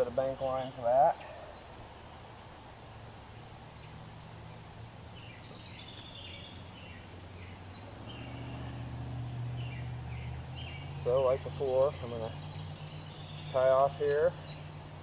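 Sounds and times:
small bird chirping: 0:03.7 - 0:14.9.

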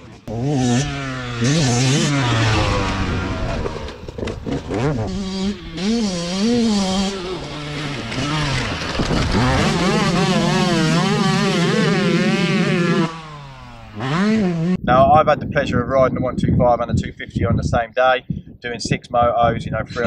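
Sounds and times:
motocross bike engine revving: 0:00.0 - 0:14.8.

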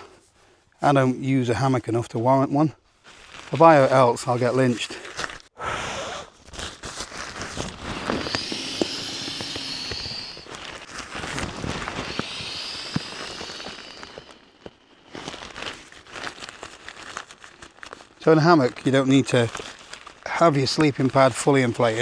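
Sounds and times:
sleeping pad rustling hiss: 0:07.3 - 0:15.9.

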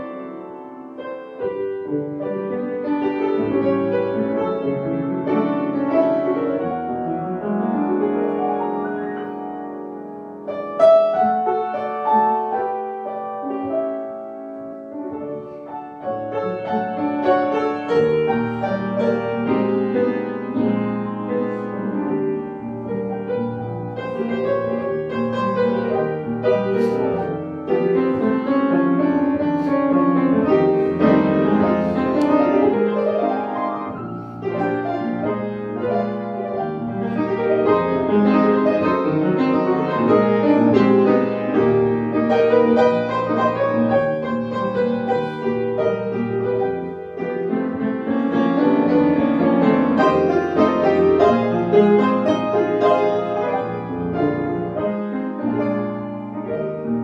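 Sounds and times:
grand piano playing hymn: 0:00.0 - 0:57.0.

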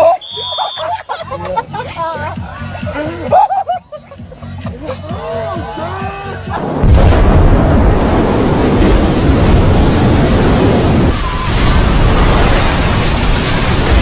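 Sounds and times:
underwater explosion roar: 0:06.6 - 0:14.0
wave surging ashore: 0:06.8 - 0:14.0.

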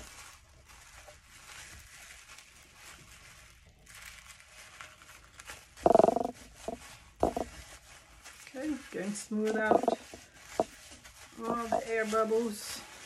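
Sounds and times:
tissue paper rustling and crinkling: 0:00.0 - 0:13.0.

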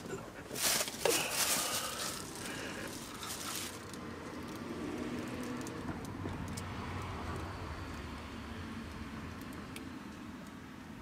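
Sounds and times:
crinkling handling noise: 0:00.0 - 0:05.8.

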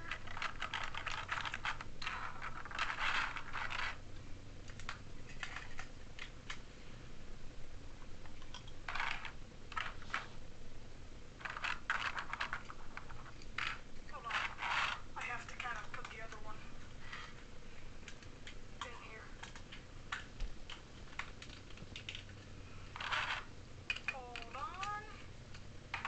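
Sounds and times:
plastic toy parts clicking: 0:00.0 - 0:04.0, 0:04.7 - 0:06.6, 0:11.4 - 0:15.0, 0:18.1 - 0:26.0.

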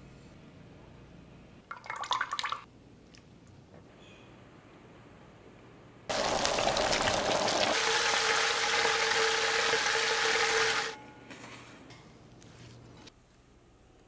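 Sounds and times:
deep-frying oil sizzle: 0:06.1 - 0:11.0.

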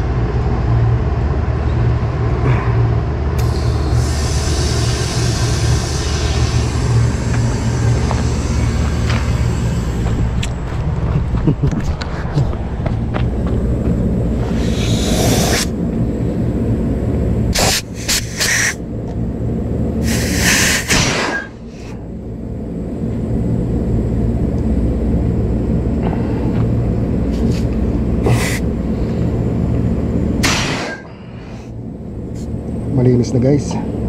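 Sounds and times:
sharp hissing spurts: 0:03.4 - 0:10.5, 0:14.4 - 0:15.8, 0:17.5 - 0:18.8, 0:20.0 - 0:21.0.

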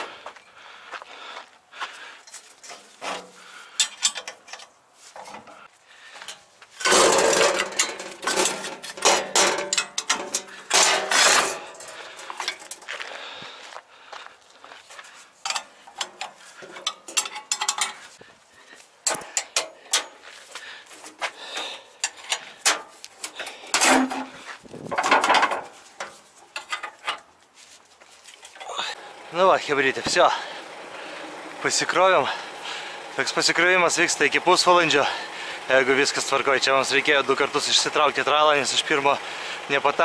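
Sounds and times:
metal clanking and scraping: 0:02.3 - 0:13.0, 0:15.4 - 0:18.2, 0:19.0 - 0:27.3.

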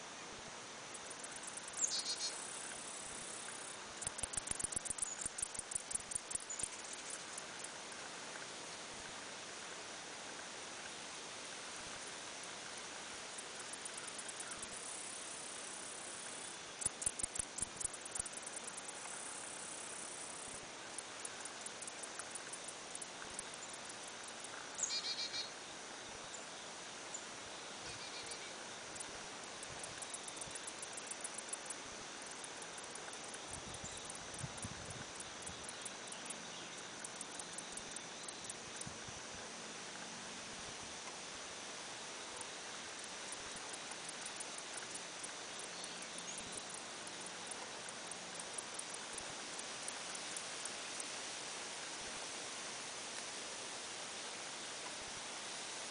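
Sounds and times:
insects chirping: 0:00.0 - 0:55.9
steady background hiss: 0:00.0 - 0:55.9
brief higher insect call: 0:00.1 - 0:07.8, 0:12.7 - 0:39.4.

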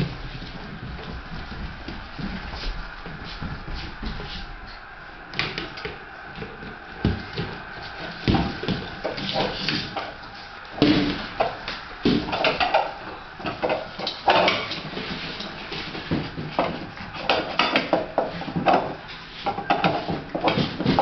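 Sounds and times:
knocks and thumps: 0:05.4 - 0:10.2, 0:10.8 - 0:21.0.

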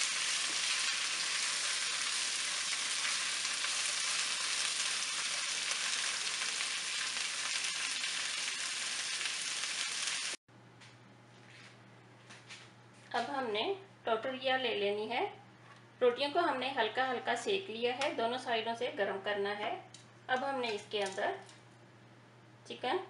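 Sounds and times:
vegetables sizzling in frying pan: 0:00.0 - 0:10.4.

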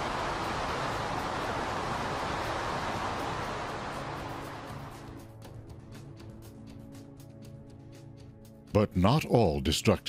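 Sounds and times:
soft background music: 0:00.0 - 0:10.0.

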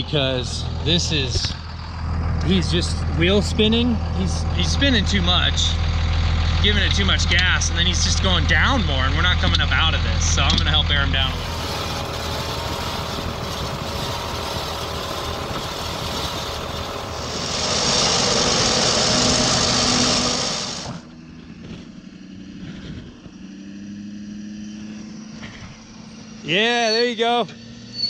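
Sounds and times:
truck engines running: 0:00.0 - 0:28.0
electric winch hauling cable: 0:04.0 - 0:21.4
loud harsh hiss: 0:11.3 - 0:21.0.

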